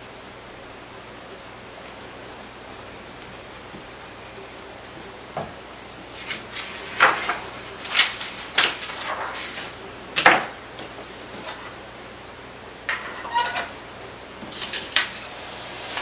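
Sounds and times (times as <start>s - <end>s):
paper rustling: 6.0s - 11.8s.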